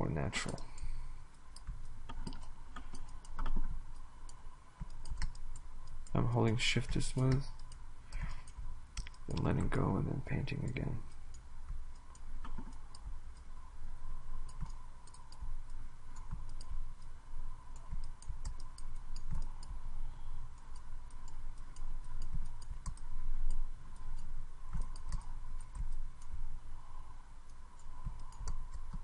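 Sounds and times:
faint steady tone: 0.0s - 29.0s
mouse and keyboard clicks: 1.5s - 9.6s, 10.7s - 13.5s, 14.4s - 15.5s, 16.1s - 17.1s, 17.7s - 19.8s, 20.6s - 26.4s, 27.8s - 29.0s.

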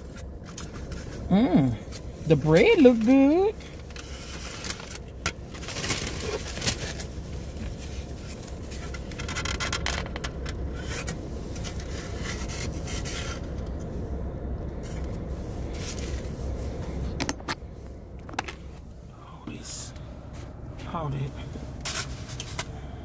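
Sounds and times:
plastic container rustling and scraping: 0.0s - 1.3s, 1.9s - 13.8s, 14.8s - 17.2s, 21.7s - 22.7s
low steady rumble: 0.0s - 23.0s.

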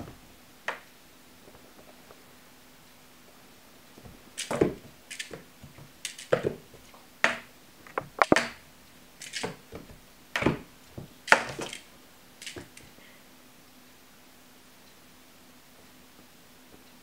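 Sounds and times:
toy tapping against wooden door: 7.2s - 8.6s, 11.3s - 11.8s.

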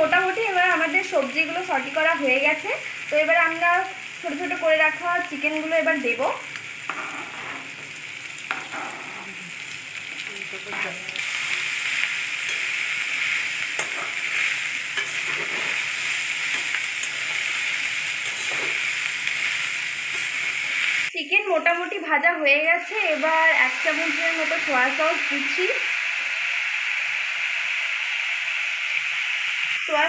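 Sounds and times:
food sizzling in hot oil: 0.0s - 30.0s
utensil scraping a pan: 6.9s - 7.8s, 10.7s - 20.7s.

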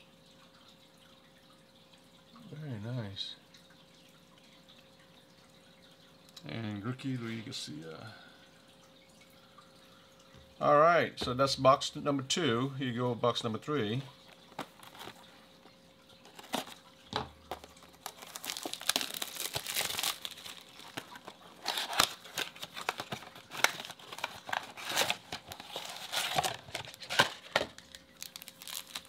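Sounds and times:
packaging crinkling: 14.2s - 15.4s, 16.2s - 16.8s, 17.5s - 29.0s
cardboard box tearing: 16.3s - 16.8s, 17.6s - 27.6s, 28.2s - 29.0s.

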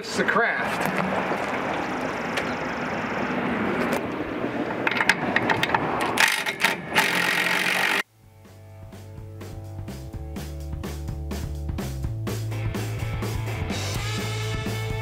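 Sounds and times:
cordless drill bursts: 6.2s - 8.0s.

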